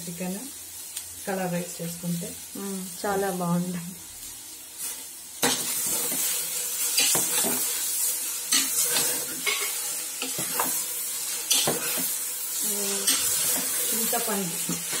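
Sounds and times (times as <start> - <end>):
pan sizzling: 0.0 - 15.0
metal spoon scraping a pot: 8.5 - 12.1.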